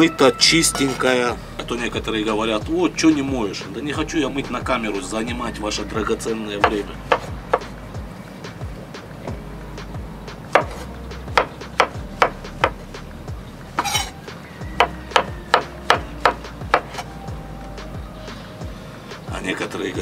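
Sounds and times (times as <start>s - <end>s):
knife chopping on wooden board: 6.6s - 7.7s, 10.5s - 10.8s
rustling scrape: 13.8s - 14.2s.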